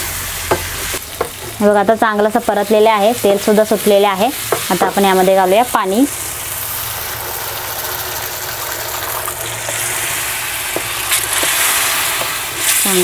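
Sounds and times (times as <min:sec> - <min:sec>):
water sizzling in hot oil: 0:00.0 - 0:13.0.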